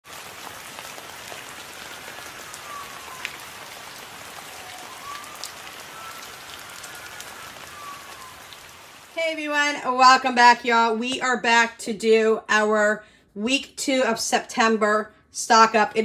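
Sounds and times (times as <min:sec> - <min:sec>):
rain falling: 0:00.0 - 0:11.3.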